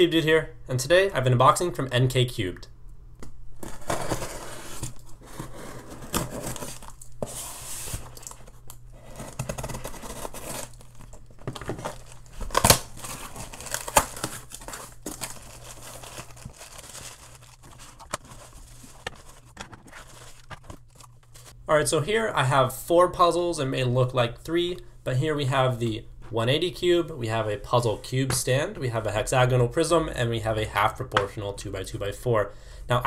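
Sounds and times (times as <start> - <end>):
bubble wrap crinkling: 3.8 - 21.6
tape and cardboard tearing: 9.2 - 19.5.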